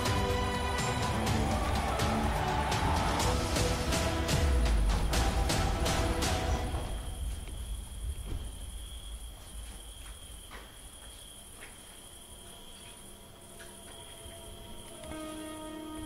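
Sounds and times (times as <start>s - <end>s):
low rumble: 1.5s - 9.5s
crickets trilling: 4.5s - 16.0s.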